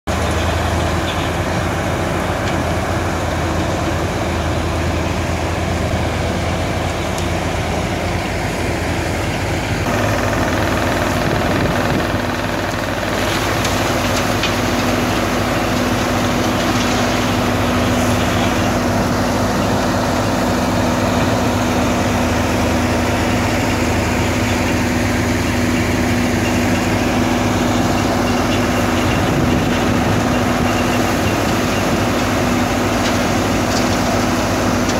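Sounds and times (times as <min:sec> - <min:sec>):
diesel engine droning: 0:00.1 - 0:34.9
excavator feeding sand: 0:00.1 - 0:34.9.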